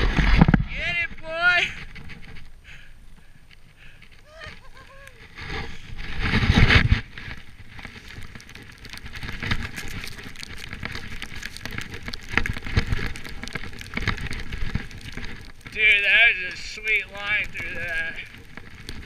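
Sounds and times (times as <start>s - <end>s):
skis swishing through powder snow: 4.3s - 19.0s.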